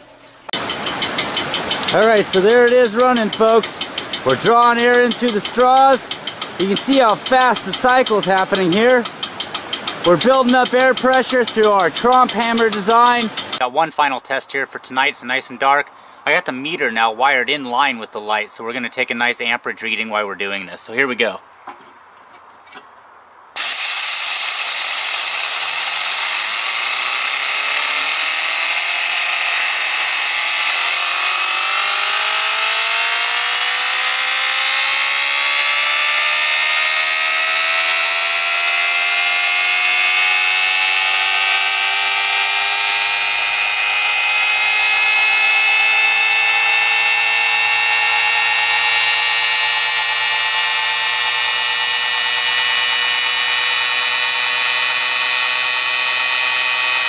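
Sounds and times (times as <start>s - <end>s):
turbine whine rising in pitch: 0.6s - 13.6s, 23.6s - 57.0s
air hissing: 23.6s - 57.0s.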